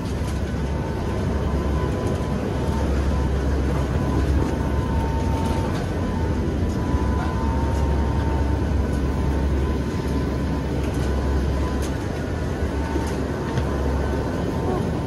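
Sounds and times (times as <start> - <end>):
aircraft engine and propeller drone: 0.0 - 15.0
thin steady whine: 0.0 - 15.0.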